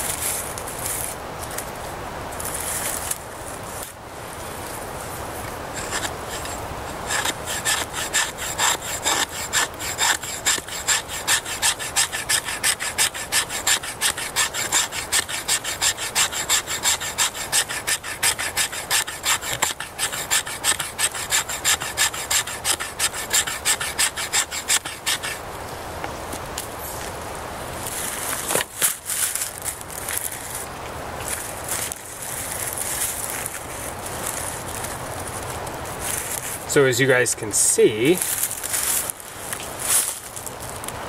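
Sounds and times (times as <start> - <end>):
knife spine scraping wood: 5.7 - 25.4.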